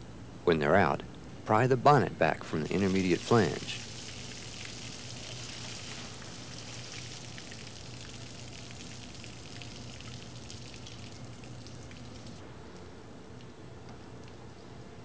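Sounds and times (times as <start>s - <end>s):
low steady hum: 0.0s - 15.0s
fluid pouring and splattering: 2.7s - 12.4s.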